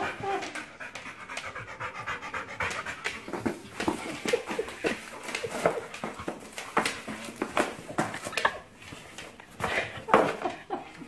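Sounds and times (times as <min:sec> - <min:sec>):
dog panting: 0:00.0 - 0:05.8
clicks and knocks on wooden floor: 0:02.7 - 0:10.7.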